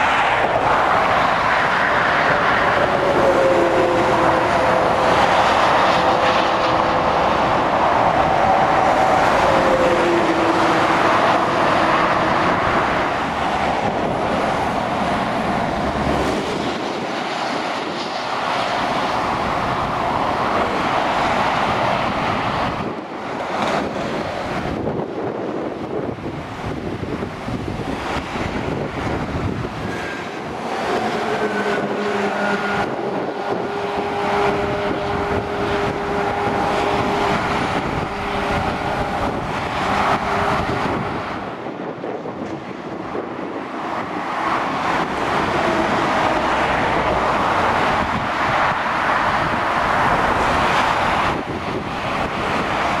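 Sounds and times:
motorway traffic passing: 0:00.0 - 0:53.0
wind on microphone: 0:00.0 - 0:53.0.

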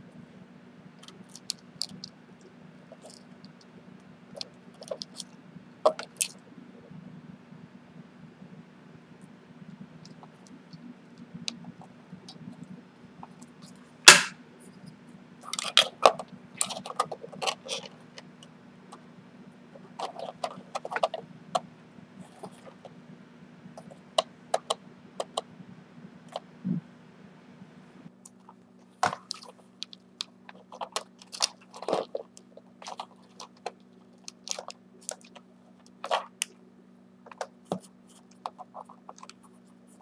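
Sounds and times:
steady low hum: 0:00.0 - 0:40.0
plastic parts clicking and scraping: 0:04.4 - 0:05.3, 0:15.4 - 0:18.3, 0:20.0 - 0:21.2, 0:29.0 - 0:36.4
sharp plastic snap: 0:14.1 - 0:14.4.

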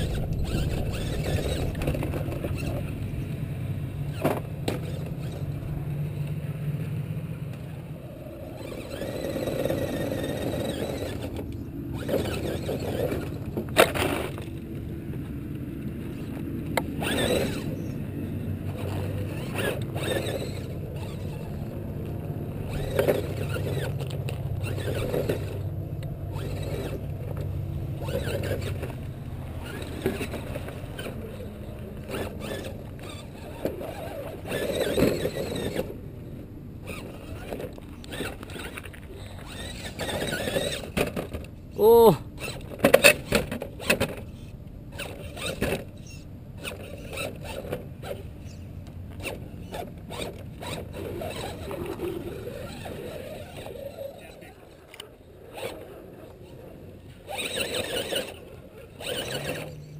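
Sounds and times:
tyres scraping on rock: 0:00.0 - 0:03.2, 0:04.1 - 0:05.6, 0:08.6 - 0:14.7, 0:16.1 - 0:18.0, 0:18.6 - 0:36.0, 0:36.8 - 0:59.9
electric motors whining: 0:00.0 - 0:59.9
trucks knocking against stones: 0:04.1 - 0:05.6, 0:08.6 - 0:15.3, 0:18.6 - 0:36.0.

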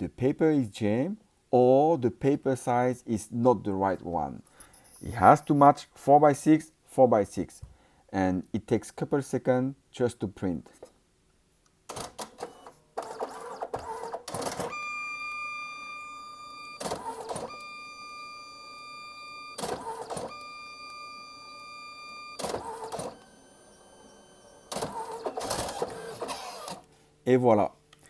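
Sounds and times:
printer whirring bursts: 0:11.9 - 0:26.9
printer motor whine: 0:12.4 - 0:26.9.

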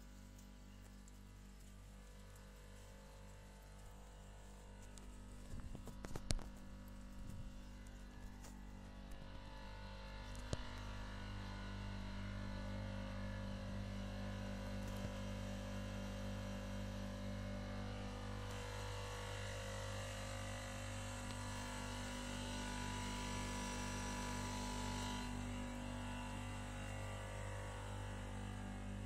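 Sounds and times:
air conditioning unit humming: 0:09.2 - 0:29.0.

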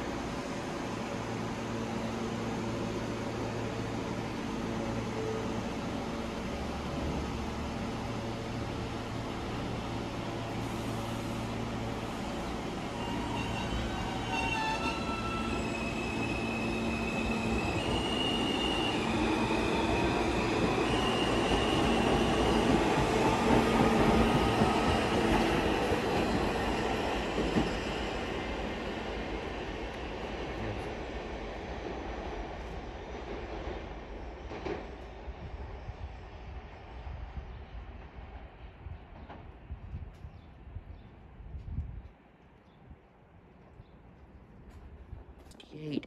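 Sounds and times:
train wheels rumbling on rails: 0:05.9 - 0:36.6
train wheels squealing: 0:12.8 - 0:28.4.

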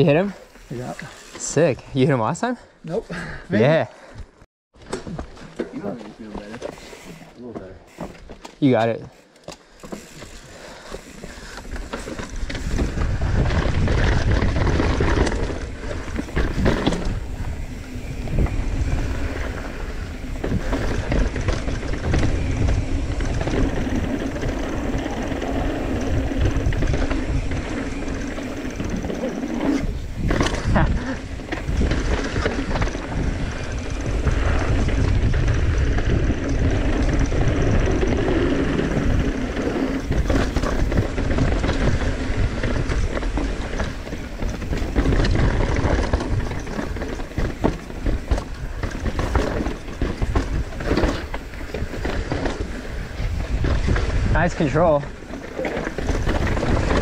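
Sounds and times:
bike tyres rattling over dirt: 0:04.8 - 0:57.0
wind rumble on microphone: 0:12.2 - 0:57.0.

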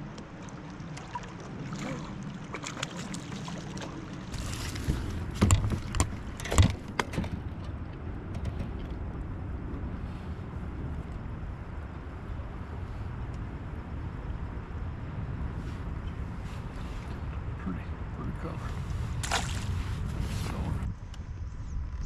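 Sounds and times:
rush of wind and water: 0:00.0 - 0:22.0
knocks and rattles: 0:04.8 - 0:09.0.

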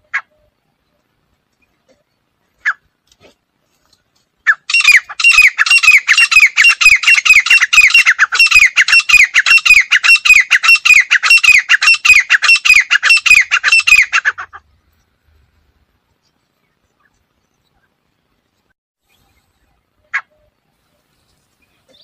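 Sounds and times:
francolin squawking calls: 0:04.5 - 0:14.6.

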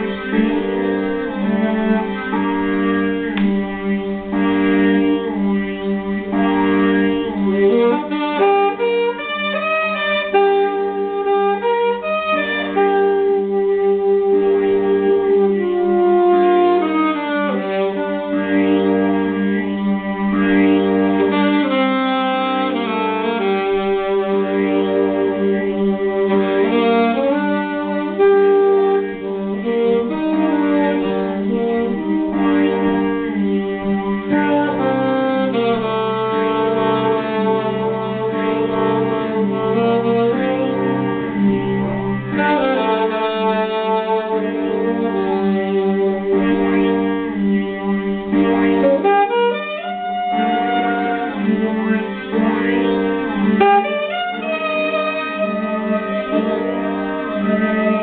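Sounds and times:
saxophone playing long notes: 0:00.0 - 0:58.0
sustained tones: 0:00.0 - 0:58.0.

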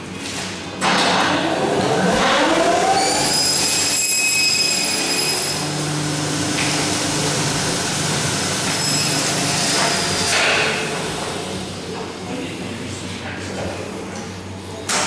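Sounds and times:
machine high-pitched whine: 0:00.8 - 0:11.9.

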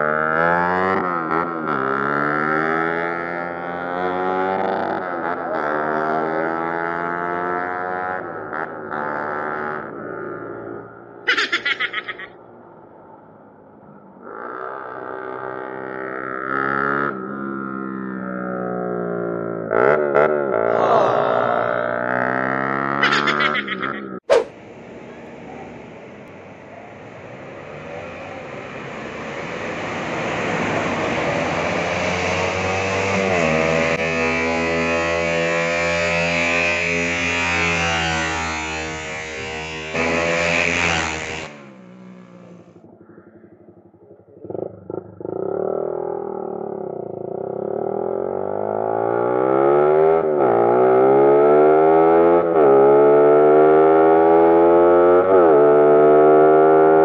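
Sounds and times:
motorcycle engine accelerating: 0:00.0 - 0:12.2, 0:13.9 - 0:24.6, 0:27.5 - 0:57.0
road traffic: 0:00.0 - 0:57.0
truck passing: 0:09.2 - 0:16.9, 0:20.5 - 0:45.5
motorcycle exhaust: 0:38.8 - 0:48.9.

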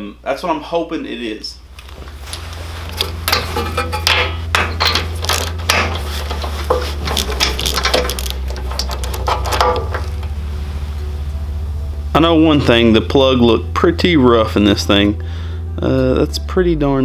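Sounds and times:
small metal knocks: 0:03.3 - 0:10.2.

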